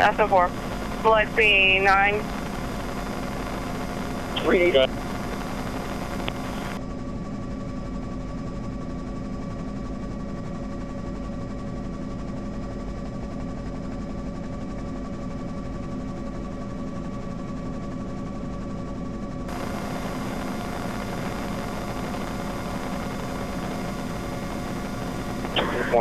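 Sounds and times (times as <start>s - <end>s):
radio-like hiss: 0.0s - 6.8s, 19.5s - 26.0s
helicopter cabin drone: 0.0s - 26.0s.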